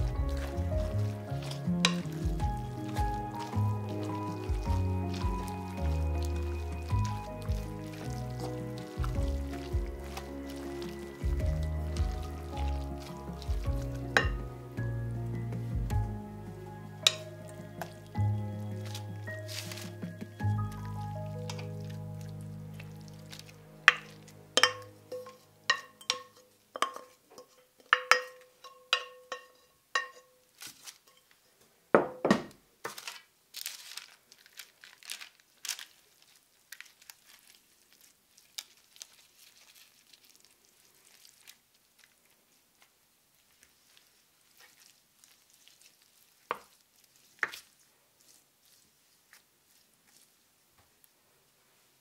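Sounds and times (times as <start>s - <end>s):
spoon scraping glass bowl: 23.9s - 30.3s
spoon tapping glass: 24.6s - 27.1s, 27.9s - 30.2s.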